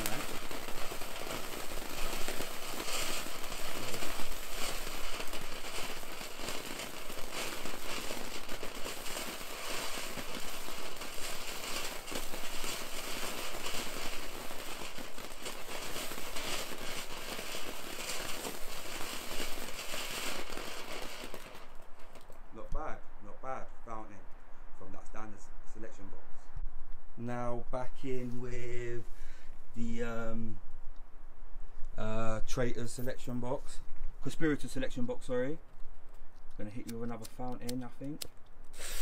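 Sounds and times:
firework fountain hissing and crackling: 0.0s - 22.4s, 38.2s - 39.0s.

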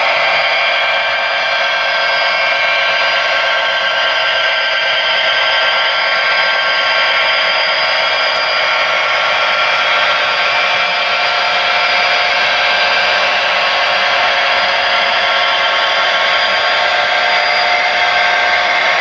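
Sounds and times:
model train wheels whirring on track: 0.0s - 19.0s.

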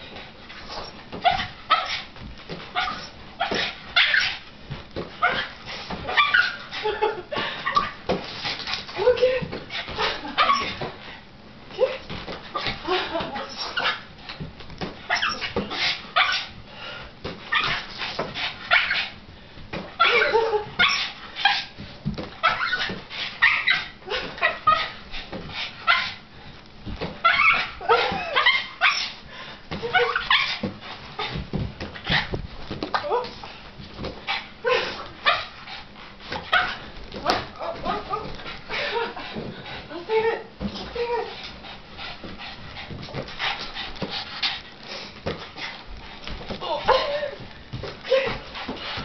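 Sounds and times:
dog panting and whining: 0.1s - 4.5s, 5.2s - 7.0s, 15.1s - 16.5s, 17.4s - 19.2s, 20.0s - 21.8s, 22.4s - 26.2s, 27.2s - 32.4s, 34.1s - 49.0s
dog yipping barking and whining: 0.7s - 2.0s, 2.7s - 4.4s, 5.2s - 6.7s, 10.3s - 10.8s, 15.1s - 16.5s, 17.5s - 17.8s, 18.7s - 19.1s, 20.0s - 21.7s, 22.4s - 25.0s, 25.8s - 26.2s, 27.2s - 29.2s, 29.9s - 30.6s, 35.2s - 35.6s, 36.4s - 36.9s.

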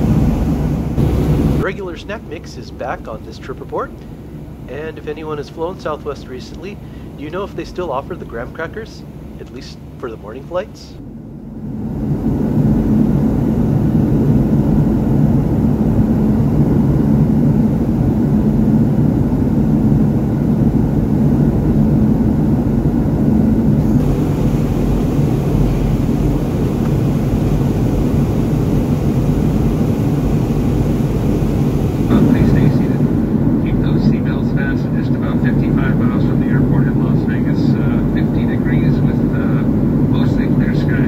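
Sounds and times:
jet cabin engine and airflow rush: 0.0s - 41.0s
low hum: 0.0s - 41.0s.

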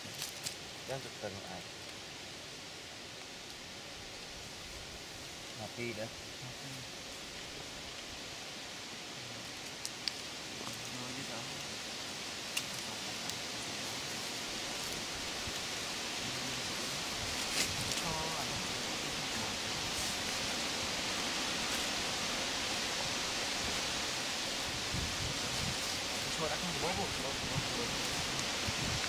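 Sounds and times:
faint clicks and rustles: 0.0s - 0.7s, 9.3s - 11.8s, 12.4s - 18.2s
high-pitched forest hiss: 0.0s - 29.0s.

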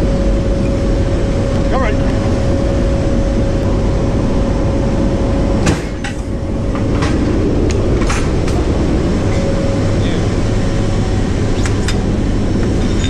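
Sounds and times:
steady mid-pitched tone: 0.0s - 12.9s
turboprop engines droning: 0.0s - 13.0s
sharp metallic clanks and knocks: 5.6s - 8.6s.

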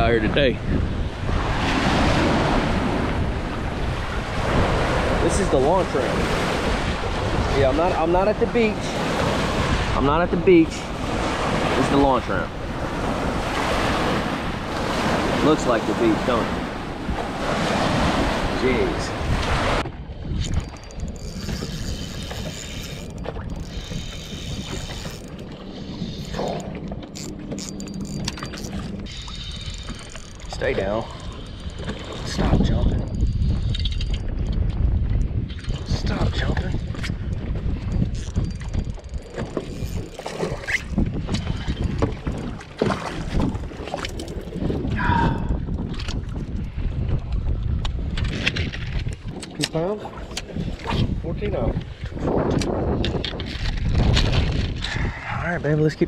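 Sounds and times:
water: 0.0s - 56.0s
wind: 0.0s - 56.0s
fishing reel gears whirring: 20.3s - 32.3s, 32.9s - 34.5s, 36.8s - 42.4s.

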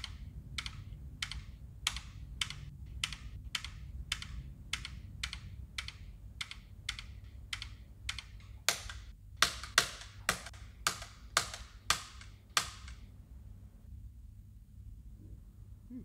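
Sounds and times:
computer keyboard keystrokes: 0.0s - 13.1s
low room hum: 0.0s - 16.0s.

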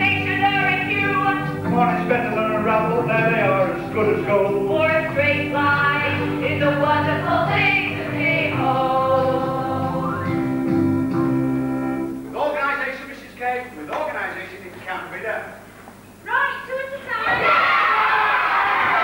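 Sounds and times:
group singing a song: 0.0s - 10.6s
instrumental accompaniment: 0.0s - 12.4s.

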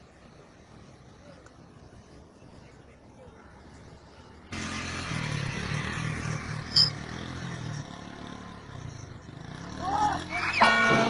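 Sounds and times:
small motorcycle engine passing: 4.5s - 11.0s.

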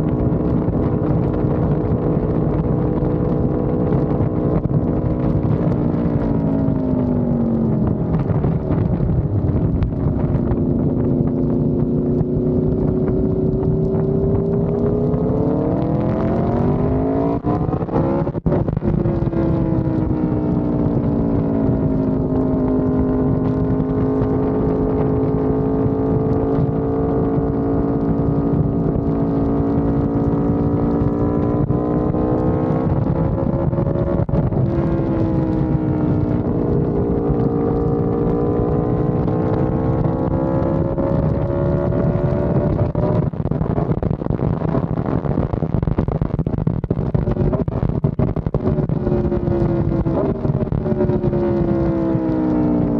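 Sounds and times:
motorcycle engine revving: 0.0s - 52.9s.

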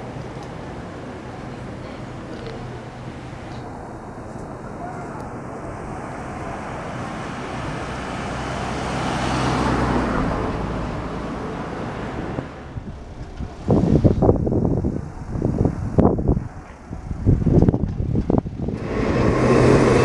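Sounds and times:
car passing: 0.0s - 20.0s.

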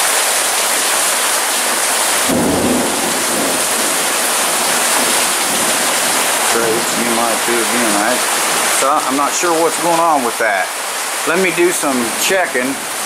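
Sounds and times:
heavy rain pouring: 0.0s - 13.0s
low thunder rumble: 2.2s - 8.0s.

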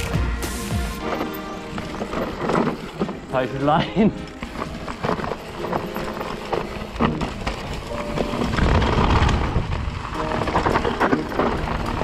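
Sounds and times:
bike tyres rumbling over dirt: 0.8s - 12.0s
bike rattling and knocking: 1.0s - 12.0s
wind on microphone: 7.8s - 12.0s.

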